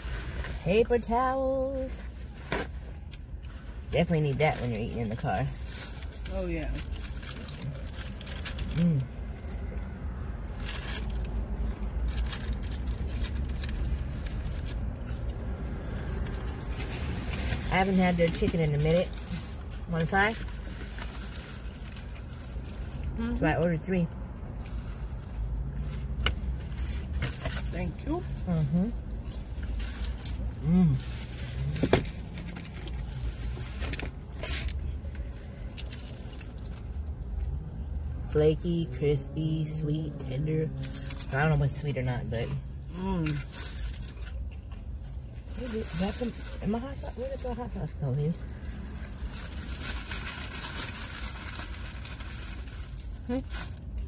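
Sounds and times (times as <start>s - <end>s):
low rumble inside car: 0.0s - 54.0s.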